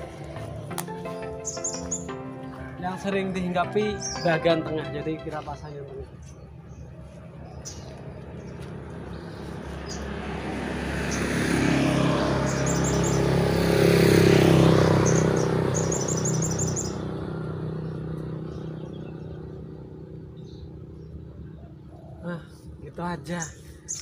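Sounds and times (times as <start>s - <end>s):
vehicle engine passing by: 0.0s - 4.6s, 5.4s - 24.0s
bird trills: 1.1s - 2.2s, 12.5s - 13.3s, 15.0s - 17.1s, 23.4s - 24.0s.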